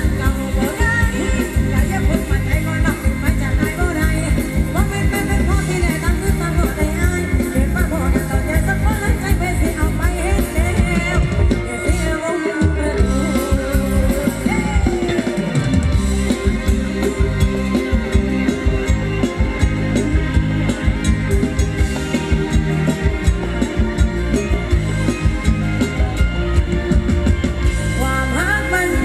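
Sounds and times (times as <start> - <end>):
person singing: 0.0 - 18.9, 27.9 - 29.0
live band playing dance music: 0.0 - 29.0.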